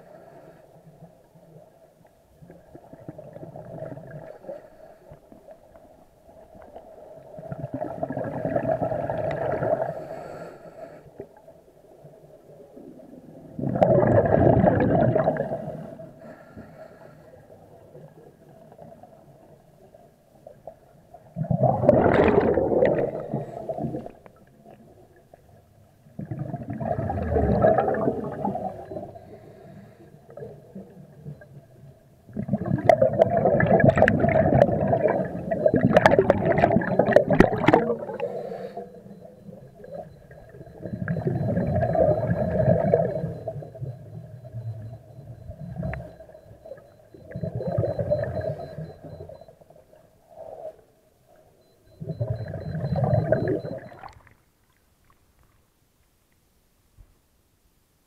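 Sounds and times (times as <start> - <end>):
diver exhaling air bubbles: 7.5 - 10.0, 13.6 - 16.0, 21.4 - 24.2, 26.2 - 29.5, 32.4 - 46.5.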